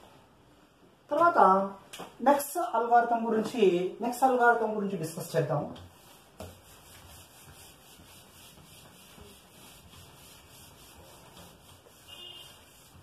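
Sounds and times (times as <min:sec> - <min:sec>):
eraser rubbing on whiteboard: 0:05.9 - 0:13.0.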